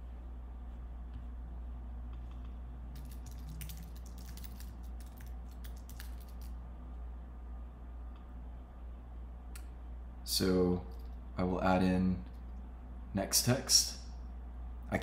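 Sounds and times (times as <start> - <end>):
steady low hum: 0.0 - 15.0
typing on computer keyboard: 3.0 - 6.5.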